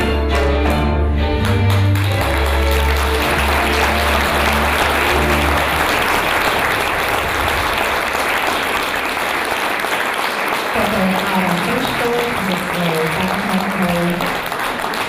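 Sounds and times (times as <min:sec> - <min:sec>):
folk string band playing: 0:00.0 - 0:05.9
audience applauding: 0:00.3 - 0:15.0.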